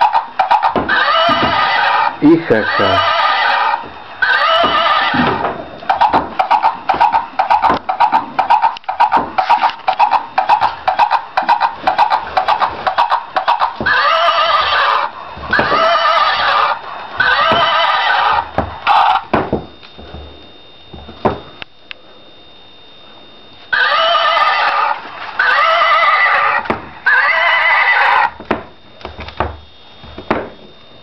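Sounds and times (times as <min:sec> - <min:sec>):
galloping hoofbeats: 0:00.0 - 0:02.0, 0:02.8 - 0:21.5
recorded horse neigh: 0:00.0 - 0:19.3, 0:23.7 - 0:28.4.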